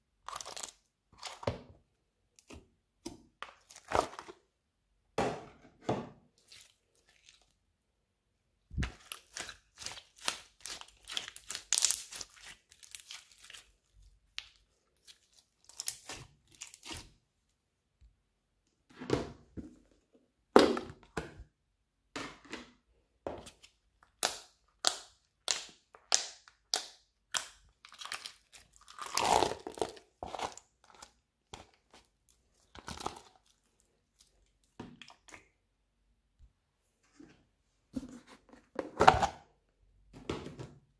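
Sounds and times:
slime crackling and squelching: 0.2s - 1.4s, 6.4s - 7.7s, 8.7s - 17.2s, 24.1s - 35.6s.

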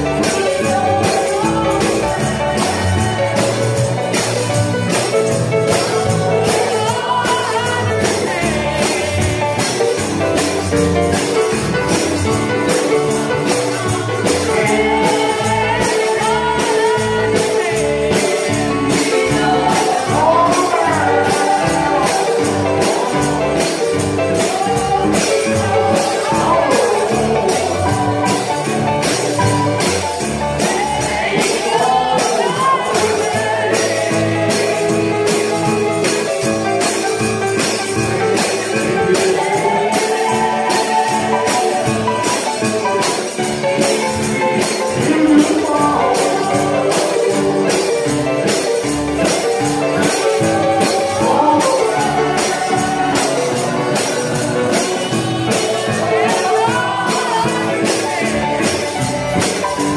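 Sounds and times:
gospel singing with instruments: 0.0s - 59.9s
tambourine beat: 0.0s - 59.9s.

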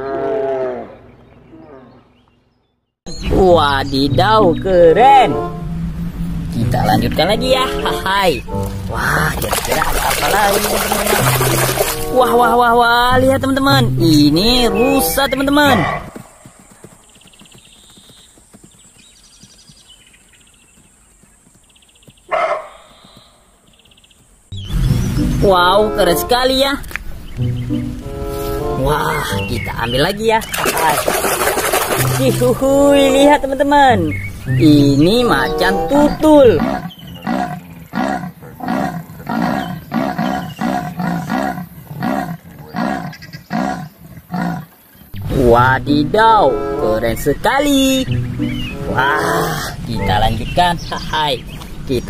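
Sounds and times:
hooves thudding on grass: 6.7s - 12.2s, 13.7s - 29.6s, 30.6s - 44.4s
loud animal call: 35.2s - 44.8s.

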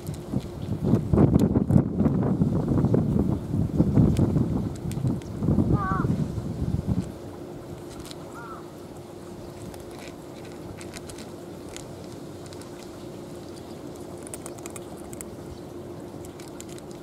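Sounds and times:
cats crunching dry kibble: 0.0s - 1.8s, 4.1s - 5.2s, 7.7s - 8.4s, 9.2s - 17.0s
constant hum: 0.0s - 17.0s
low background rumble: 0.0s - 17.0s.

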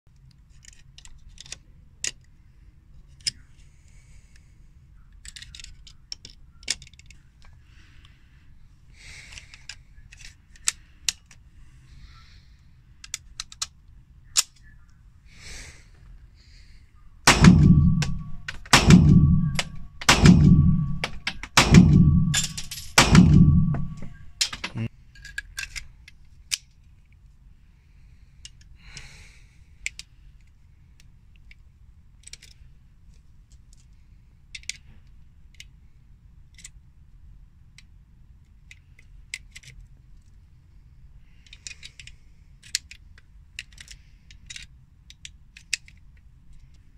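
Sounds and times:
metallic handling clicks: 13.0s - 14.7s, 20.9s - 26.8s, 41.4s - 46.8s
pistol shots echoing: 17.3s - 24.7s.

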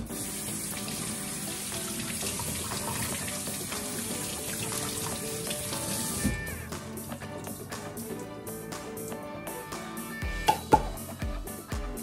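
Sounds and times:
background music: 0.0s - 12.0s
tap running into sink: 10.4s - 11.0s.

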